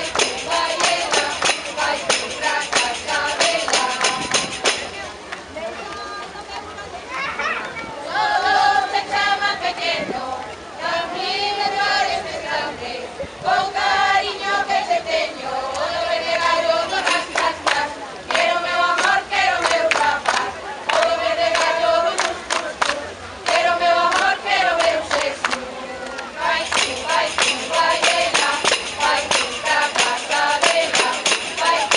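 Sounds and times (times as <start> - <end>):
sharp rhythmic strikes: 0.0 - 5.1, 26.4 - 31.9
women singing together: 0.0 - 5.1, 8.0 - 31.9.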